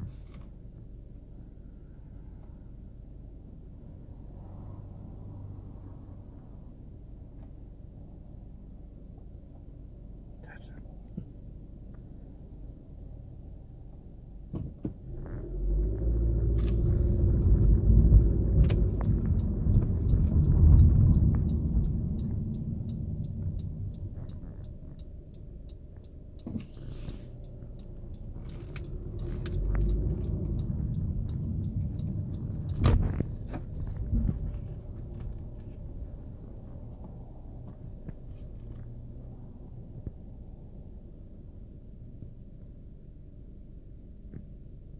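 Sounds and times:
car engine and road rumble: 0.0 - 44.9
faint ticks: 18.5 - 35.8.

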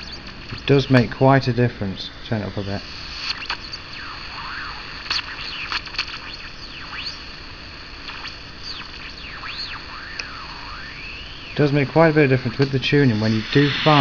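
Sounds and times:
radio hiss: 0.0 - 14.0
whistles gliding in pitch: 3.3 - 7.2, 8.1 - 14.0
scattered clicks: 5.0 - 7.2.

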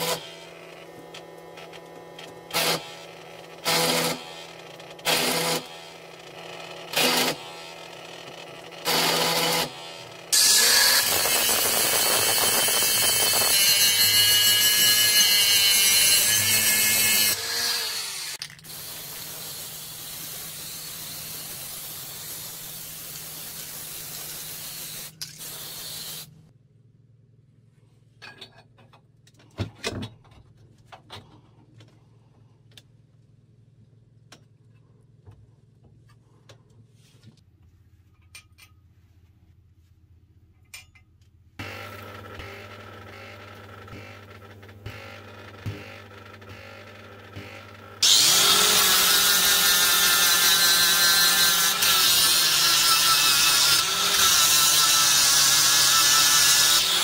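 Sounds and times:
arc welder tack welding: 0.0 - 26.4, 41.8 - 57.0
angle grinder grinding: 2.5 - 26.3, 41.6 - 57.0.

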